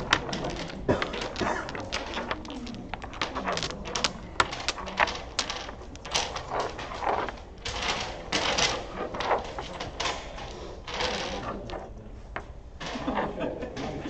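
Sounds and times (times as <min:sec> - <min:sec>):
dominoes clacking on wooden table: 0:00.0 - 0:13.1.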